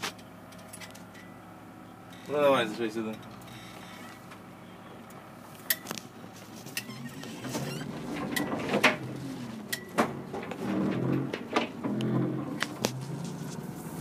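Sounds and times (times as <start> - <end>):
bus diesel engine running: 0.0 - 14.0
knocks and rattles in bus cab: 6.8 - 13.0.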